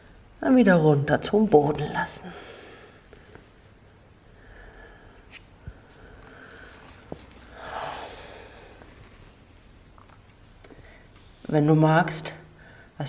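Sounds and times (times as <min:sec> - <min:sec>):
person breathing: 0:02.2 - 0:03.6, 0:04.2 - 0:09.4, 0:10.6 - 0:11.4, 0:12.5 - 0:13.0.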